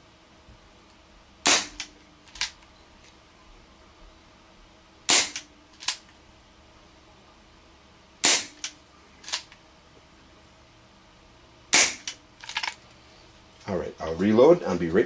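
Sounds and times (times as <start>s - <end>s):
airsoft revolver shots: 1.4s - 1.9s, 5.1s - 5.5s, 8.2s - 8.7s, 11.7s - 12.2s.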